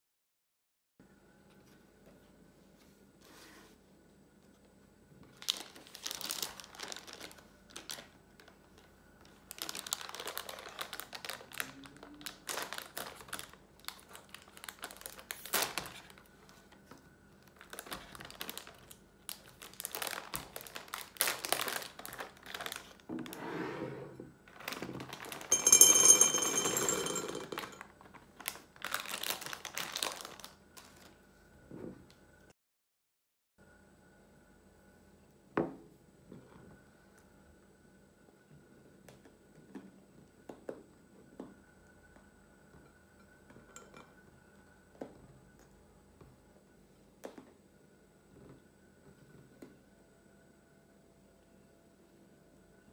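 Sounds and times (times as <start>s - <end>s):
plastic packet crinkling: 5.3s - 16.4s, 17.4s - 23.1s, 24.5s - 25.6s, 27.4s - 31.2s
sweets pouring into glass bowl: 24.6s - 30.5s.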